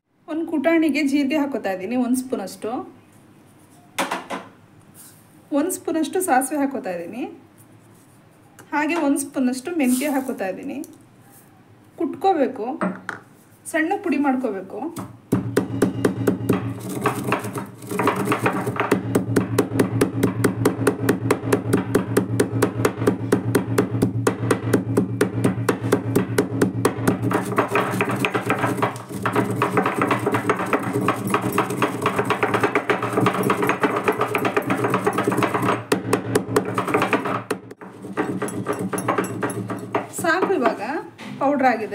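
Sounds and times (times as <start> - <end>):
stone pestle pounding seeds: 15.3 - 40.8.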